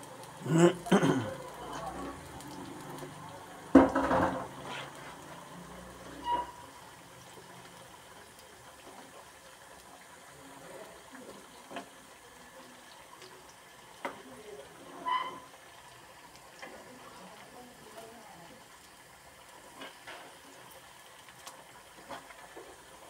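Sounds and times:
fries sizzling in hot oil: 0:00.0 - 0:23.0.

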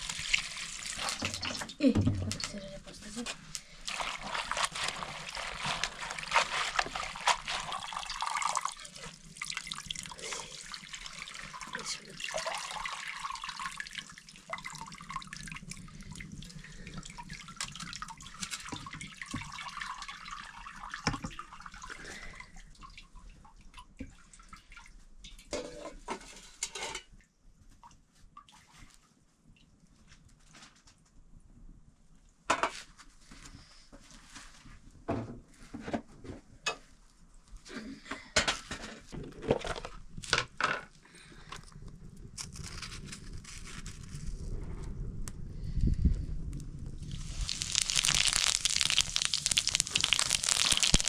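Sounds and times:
water splashing and trickling: 0:00.0 - 0:25.5, 0:47.0 - 0:51.0.

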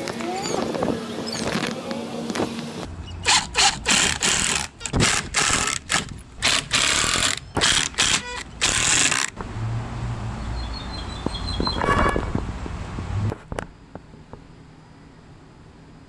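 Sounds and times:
impact driver driving screws: 0:03.3 - 0:09.4.

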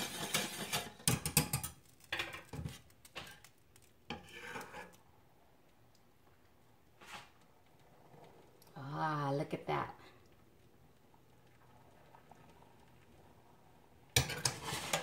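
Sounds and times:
metal spoon scraping dishes: 0:00.0 - 0:01.7, 0:04.1 - 0:05.0, 0:14.2 - 0:15.0.

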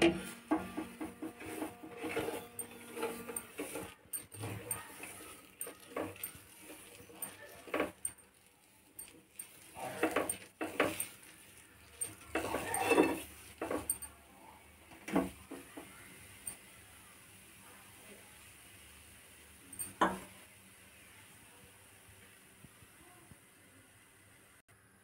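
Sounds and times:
steel ladle scraping a griddle: 0:00.0 - 0:14.1.

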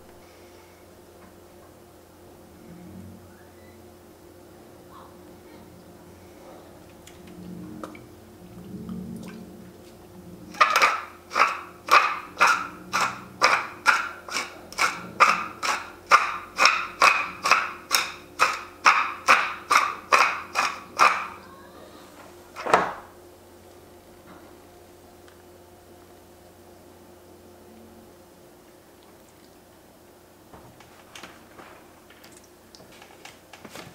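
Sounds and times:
pepper mill grinding: 0:10.6 - 0:21.4.

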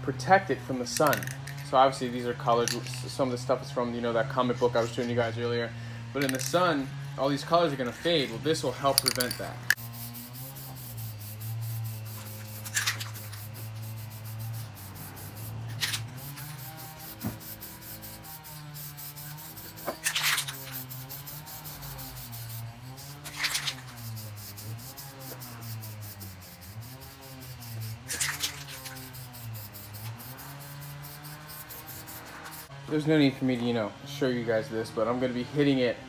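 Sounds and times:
spray can hissing: 0:09.0 - 0:32.7.

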